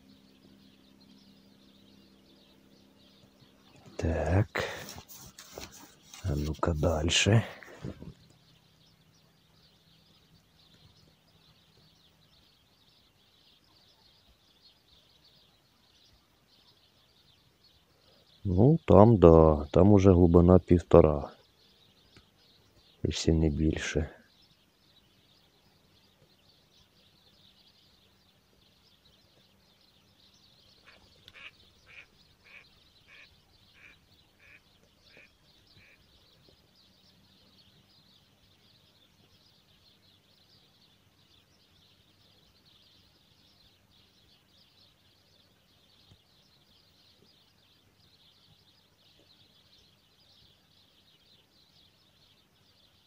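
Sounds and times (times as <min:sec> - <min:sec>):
duck quacking: 0:30.8 - 0:36.0.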